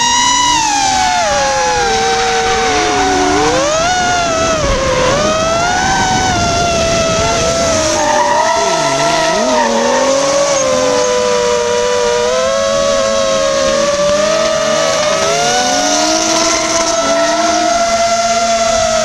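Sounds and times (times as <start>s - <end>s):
car engines revving: 0.0s - 19.0s
drone propeller whine: 0.0s - 19.0s.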